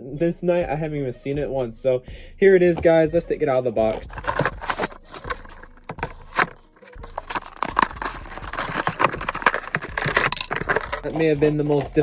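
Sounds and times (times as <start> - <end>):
cardboard ripping: 3.8 - 11.9
plastic packaging crinkling: 3.9 - 12.0.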